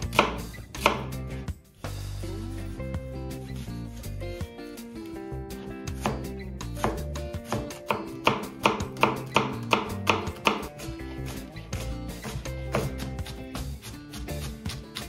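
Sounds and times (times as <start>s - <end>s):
knife chopping on cutting board: 0.0s - 1.2s, 5.6s - 15.0s
background music: 0.0s - 15.0s.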